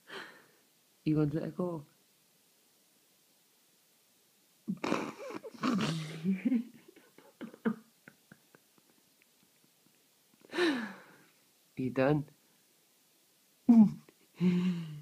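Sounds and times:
dog grumbling: 0:04.7 - 0:06.4.

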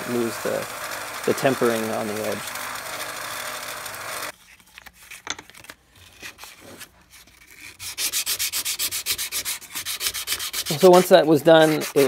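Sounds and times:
belt sander grinding steel: 0:00.0 - 0:04.3, 0:10.0 - 0:12.0
sandpaper rubbed by hand: 0:01.2 - 0:02.5, 0:06.3 - 0:12.0.

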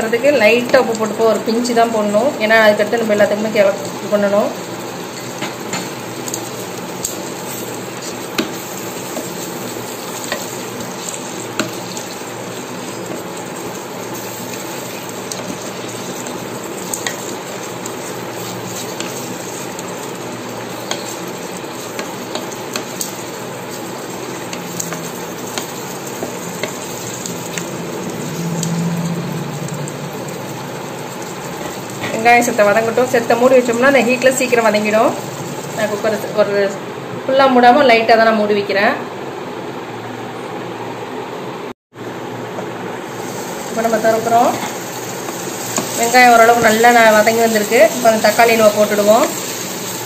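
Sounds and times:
vegetables sizzling in hot oil: 0:00.0 - 0:36.5, 0:42.0 - 0:50.0
low hum: 0:27.3 - 0:31.0.

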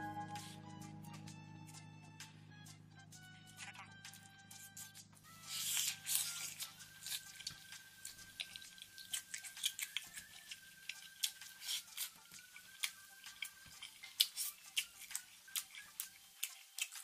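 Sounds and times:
person chewing: 0:04.7 - 0:17.0.

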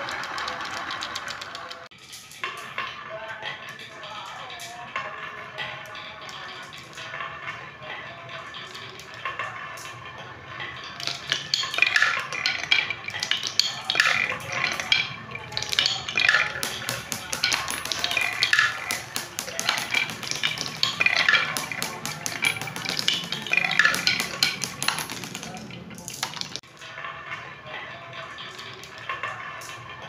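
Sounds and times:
marbles clacking on wooden track: 0:00.0 - 0:04.2, 0:10.6 - 0:26.9.

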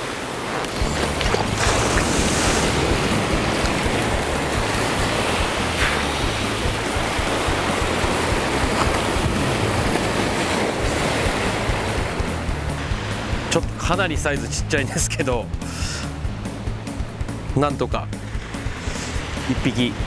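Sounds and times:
surf washing onto stony shore: 0:00.0 - 0:13.6.

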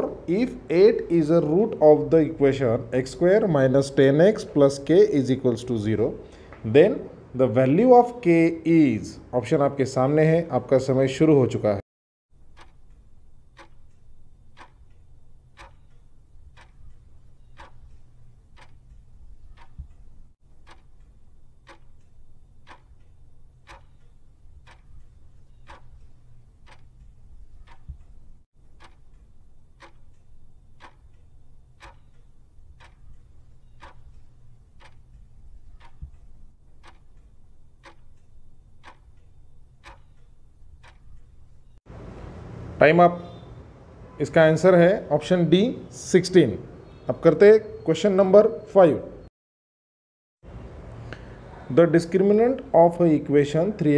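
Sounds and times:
clock ticking: 0:00.0 - 0:04.8, 0:12.3 - 0:41.8.

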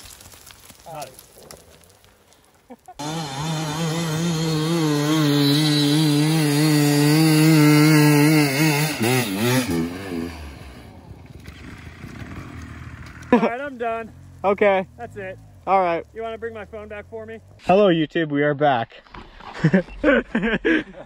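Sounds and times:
dirt bike engine revving: 0:03.0 - 0:17.6.

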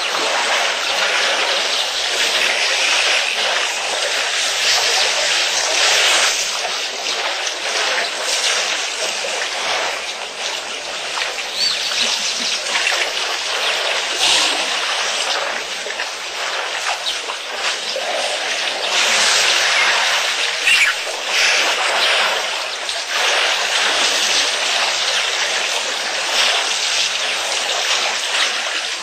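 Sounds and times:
water splashes: 0:00.0 - 0:29.0
water trickling: 0:06.4 - 0:27.9.

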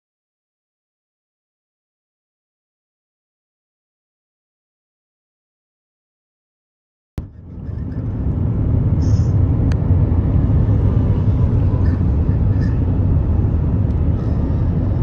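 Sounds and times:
wheels squeaking: 0:07.2 - 0:08.2, 0:10.7 - 0:13.1, 0:14.1 - 0:15.0
train wheels rumbling on rails: 0:07.2 - 0:15.0.

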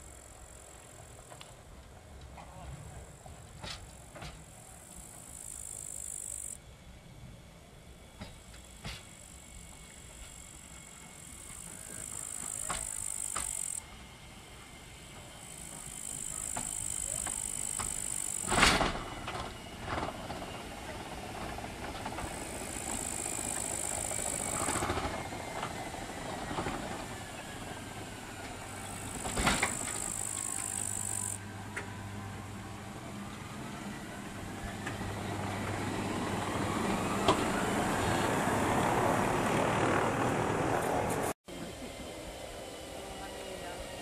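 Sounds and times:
train rolling noise: 0:00.0 - 0:44.0
electric train motor whine: 0:03.8 - 0:44.0.

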